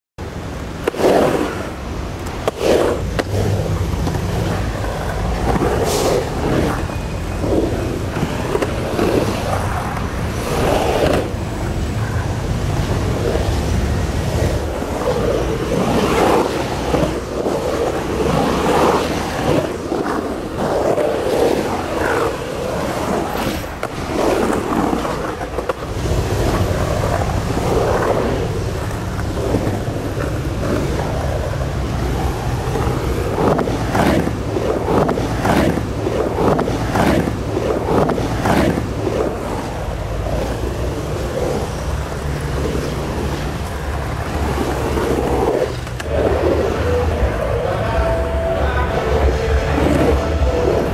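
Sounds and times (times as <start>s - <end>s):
skateboard clacks: 0.2s - 50.9s
skateboard wheels rolling on concrete: 0.2s - 50.9s.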